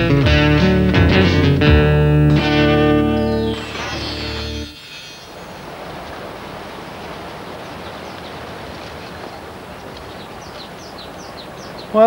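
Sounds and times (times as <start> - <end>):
birds chirping: 0.0 - 12.0
steady hiss: 2.6 - 6.7.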